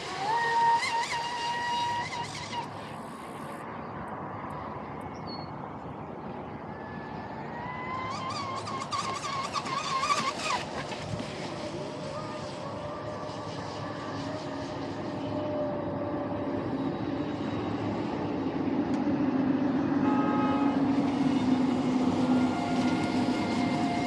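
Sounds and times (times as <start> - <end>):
electric motor whining: 0.0 - 3.5
water spray: 0.0 - 3.6, 8.3 - 15.2.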